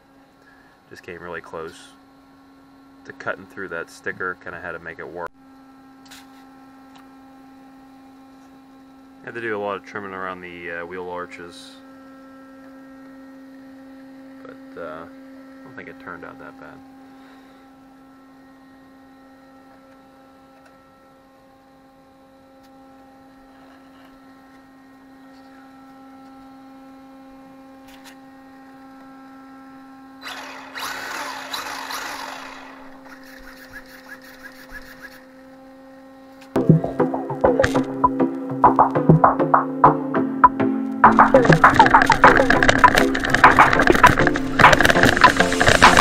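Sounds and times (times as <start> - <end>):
electrical hum: 0.0 - 46.0
music with wood-block beat: 36.6 - 46.0.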